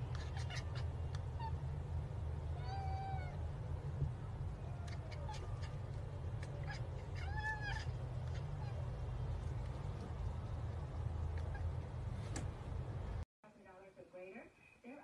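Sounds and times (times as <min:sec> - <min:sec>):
steady low hum: 0:00.0 - 0:13.3
cat meowing: 0:02.6 - 0:03.4, 0:06.4 - 0:08.9.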